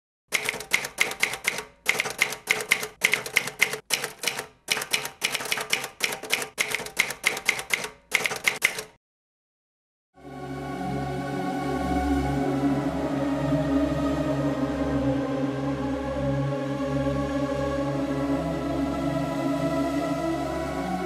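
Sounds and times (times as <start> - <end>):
typewriter keys clacking: 0.3 - 9.0.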